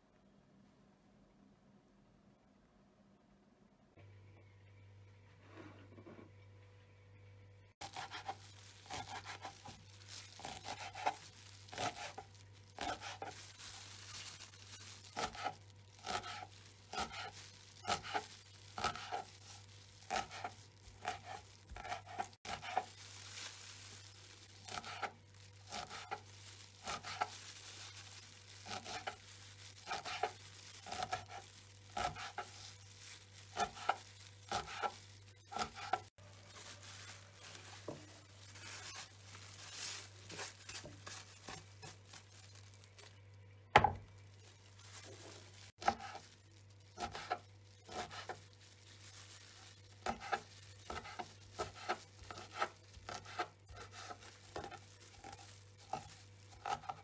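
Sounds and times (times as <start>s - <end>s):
knife chopping on plastic board: 43.8s - 44.0s.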